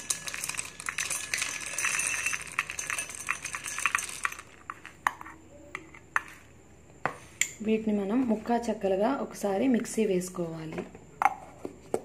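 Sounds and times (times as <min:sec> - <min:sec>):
nuts rattling into steel jar: 0:00.0 - 0:05.0.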